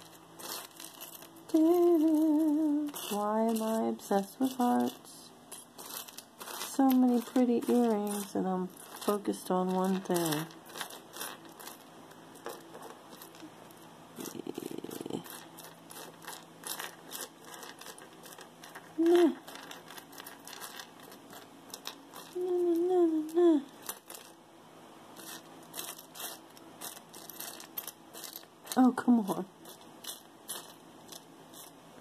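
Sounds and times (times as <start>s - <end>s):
earrings clicking and rattling: 0.0s - 24.4s, 25.2s - 31.8s
woman humming: 1.5s - 5.2s, 14.2s - 15.4s, 19.0s - 19.6s, 22.3s - 23.9s.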